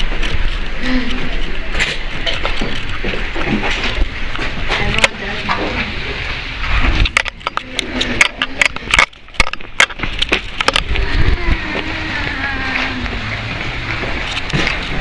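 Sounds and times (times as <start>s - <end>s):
outdoor noise: 0.0s - 15.0s
indistinct voices: 4.5s - 9.1s, 10.6s - 15.0s.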